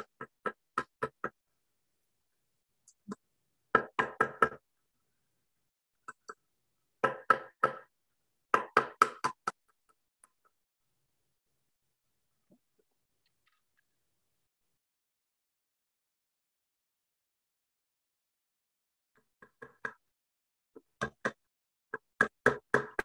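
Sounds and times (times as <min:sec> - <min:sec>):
hammer tapping nails into wood: 0:03.7 - 0:04.6, 0:08.5 - 0:09.6.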